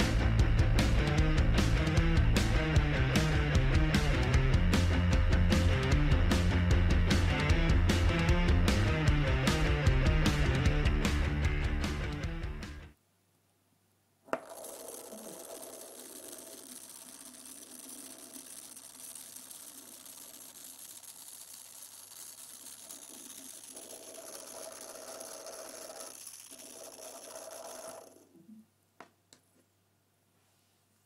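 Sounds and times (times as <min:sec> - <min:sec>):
small electric motor whirring: 0:14.4 - 0:28.3.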